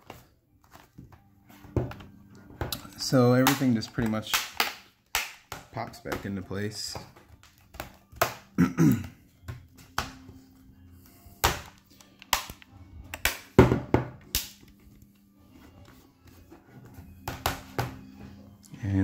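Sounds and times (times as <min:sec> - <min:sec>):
laptop clips snapping: 0:11.7 - 0:13.5.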